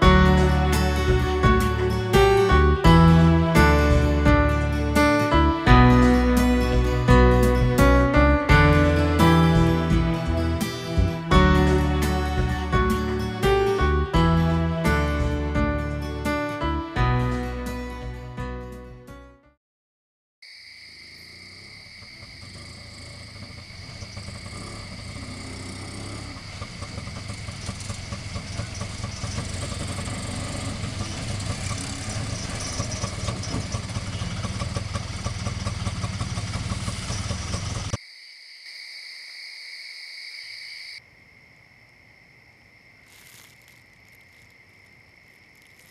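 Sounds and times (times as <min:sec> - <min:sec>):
vehicle engine running: 0:00.0 - 0:16.2, 0:22.0 - 0:38.0
crickets chirping: 0:20.4 - 0:34.7, 0:38.0 - 0:45.9.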